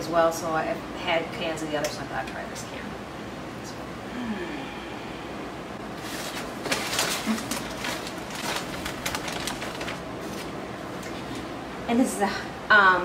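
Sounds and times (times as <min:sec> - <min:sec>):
packaging rustling and crinkling: 0:06.0 - 0:11.5.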